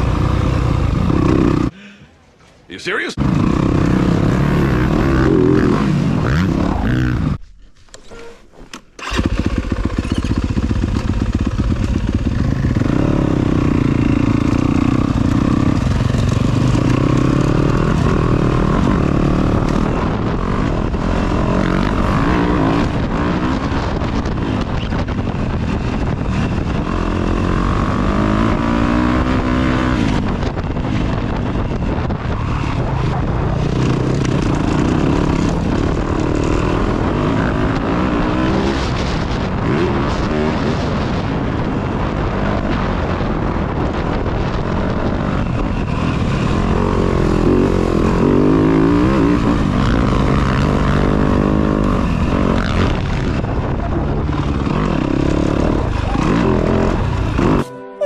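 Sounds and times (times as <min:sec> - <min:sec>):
dirt bike engine revving: 0:00.0 - 0:01.8, 0:03.2 - 0:07.4, 0:09.0 - 0:57.7.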